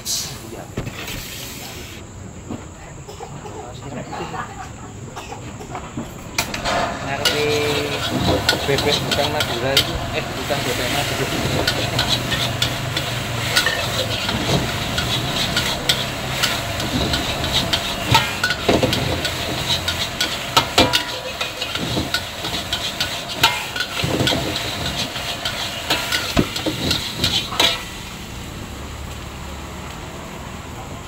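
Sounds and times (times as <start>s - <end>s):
metal spatula scraping a wok: 6.4s - 28.2s
rice sizzling in a wok: 6.4s - 31.0s.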